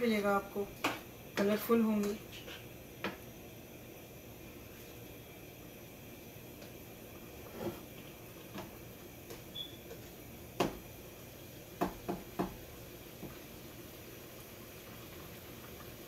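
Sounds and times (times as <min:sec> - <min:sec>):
spoon tapping against pan: 0:11.8 - 0:12.6.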